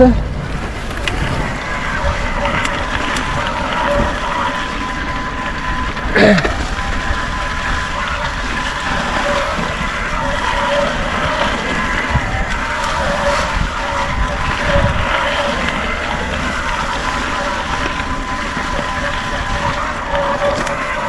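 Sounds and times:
faint motor whine: 0:00.0 - 0:21.0
tyres rolling on dirt: 0:00.0 - 0:21.0
wind rush on microphone: 0:00.0 - 0:21.0.

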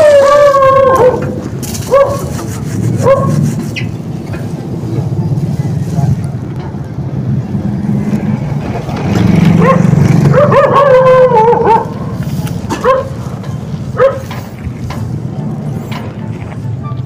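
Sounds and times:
dog barking and howling: 0:00.0 - 0:02.4, 0:03.0 - 0:03.4, 0:09.6 - 0:12.2, 0:12.8 - 0:13.2, 0:14.0 - 0:14.3
motorcycle passing: 0:00.3 - 0:17.0.

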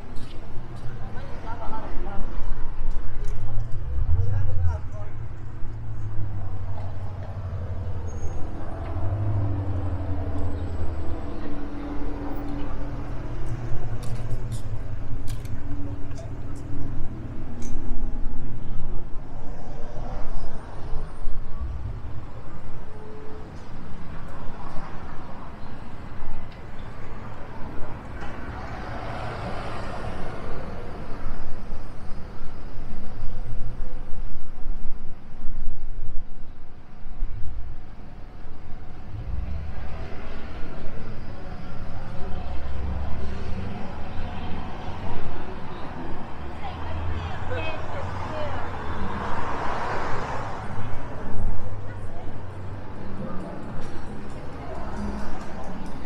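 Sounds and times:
traffic engine rumble: 0:00.0 - 0:56.0
vehicle passing: 0:03.7 - 0:22.3, 0:38.7 - 0:56.0.

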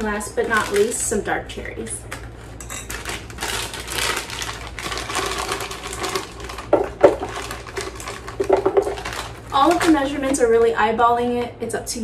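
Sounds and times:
frozen fruit clattering into jar: 0:02.6 - 0:09.9.

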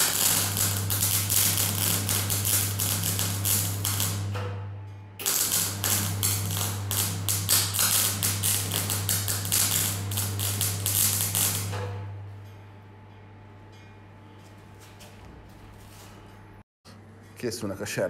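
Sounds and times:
welding arc crackling: 0:00.0 - 0:04.4, 0:05.2 - 0:11.9.

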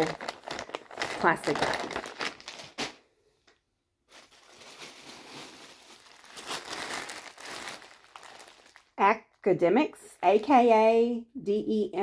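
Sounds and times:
plastic bags crinkling: 0:00.0 - 0:09.4.

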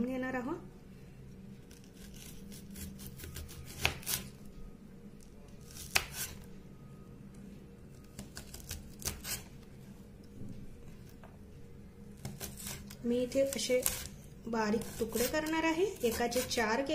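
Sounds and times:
faint steady hum: 0:00.0 - 0:16.9
serrated knife sawing gourd: 0:01.7 - 0:04.3, 0:08.4 - 0:09.5, 0:12.2 - 0:16.9.

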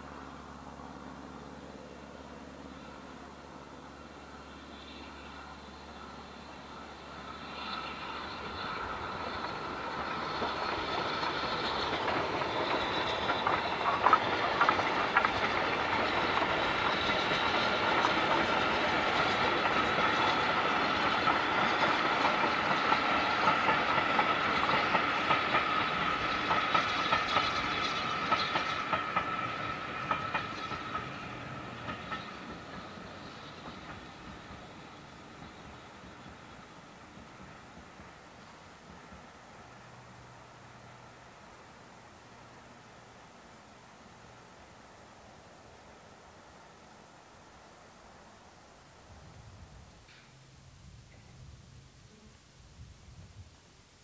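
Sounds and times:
train wheels clicking over rail joints: 0:02.7 - 0:42.7, 0:49.9 - 0:50.6.

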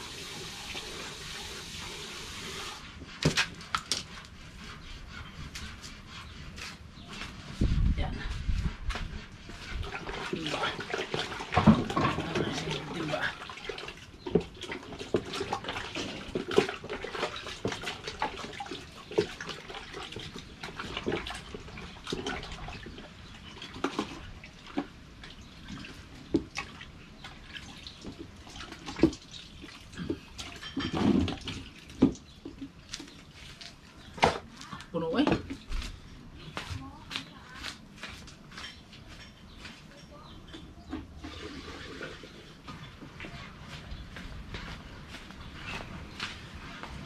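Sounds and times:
wet squelching and sloshing: 0:08.5 - 0:34.9.

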